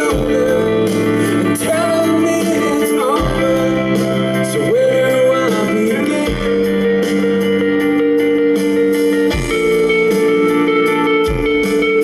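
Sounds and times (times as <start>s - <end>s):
man singing: 0.0s - 7.3s, 9.3s - 10.2s
deep bass notes: 0.0s - 12.0s
guitar chords: 0.0s - 12.0s.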